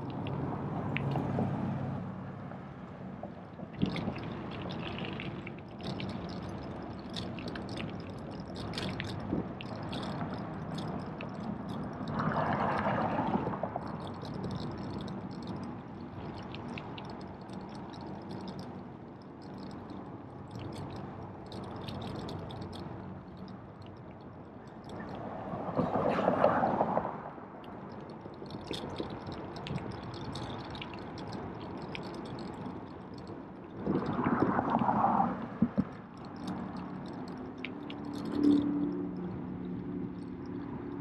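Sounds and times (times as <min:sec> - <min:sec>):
tyre and wind noise: 0:03.6 - 0:23.3, 0:28.1 - 0:41.0
bicycle rattling clicks: 0:03.8 - 0:12.6, 0:13.7 - 0:25.3, 0:27.8 - 0:34.8, 0:35.8 - 0:41.0.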